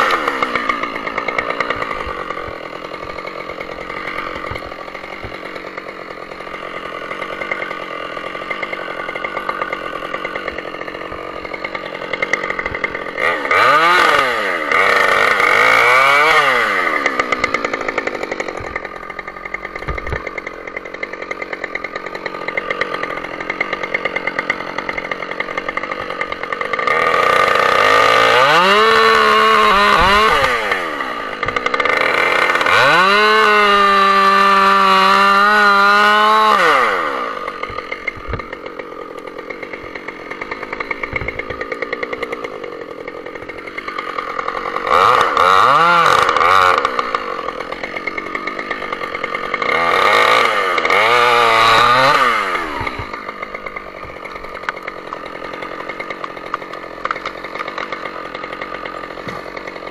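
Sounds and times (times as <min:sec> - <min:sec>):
chainsaw cutting and revving: 0:00.0 - 0:59.9.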